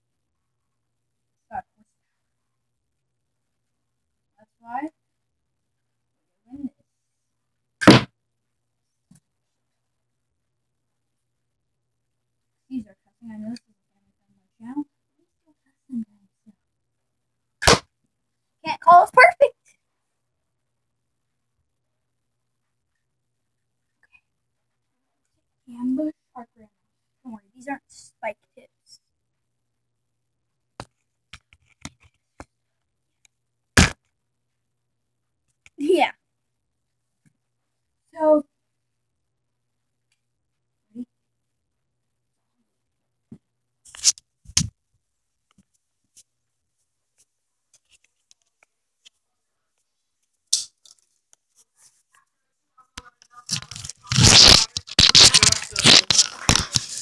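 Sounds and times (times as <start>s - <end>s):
crossbow string snap: 50.5s - 50.7s
wooden crossbow clicks and taps: 50.5s - 51.0s
loud ragged crackling: 53.5s - 57.0s.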